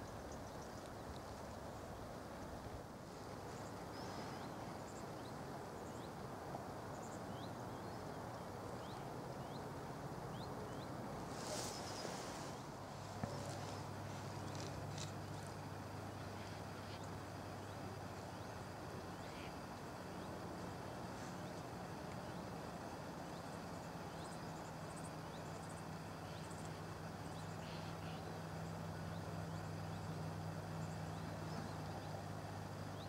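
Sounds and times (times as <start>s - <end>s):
low steady hum: 0.0s - 33.0s
even hiss: 9.8s - 33.0s.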